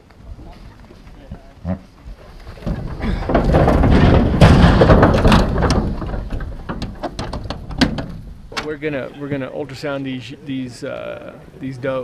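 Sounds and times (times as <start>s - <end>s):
animal scuffling and thumping: 2.1s - 8.7s.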